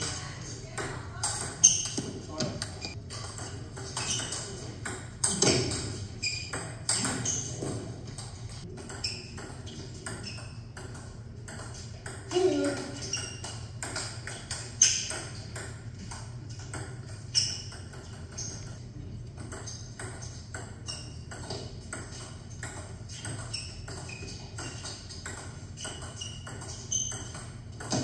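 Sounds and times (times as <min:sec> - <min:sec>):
table tennis balls clicking: 0:00.0 - 0:28.0.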